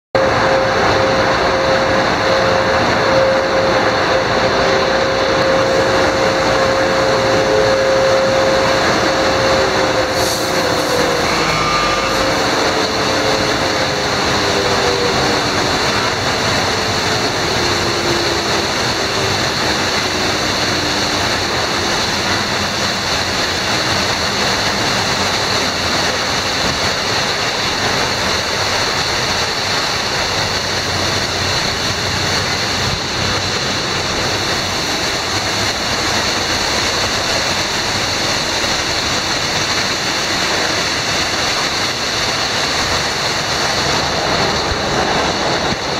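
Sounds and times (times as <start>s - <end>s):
machine whine falling in pitch: 0.2s - 19.4s
hiss of water spray: 0.8s - 45.9s.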